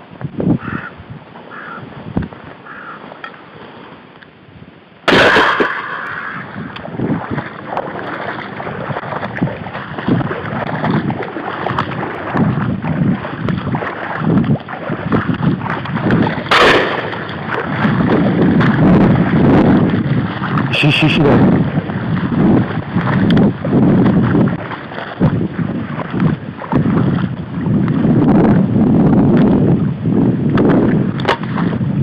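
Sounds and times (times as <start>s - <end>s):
wind on microphone: 0.0s - 3.0s, 4.4s - 32.0s
water sloshing underfoot: 5.1s - 28.0s.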